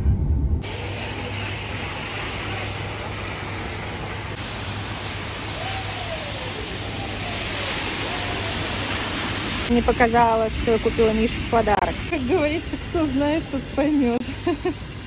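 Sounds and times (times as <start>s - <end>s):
faint falling whines: 0.0s - 9.4s
low traffic hum: 0.0s - 15.0s
tyres hissing on wet road: 0.6s - 13.4s.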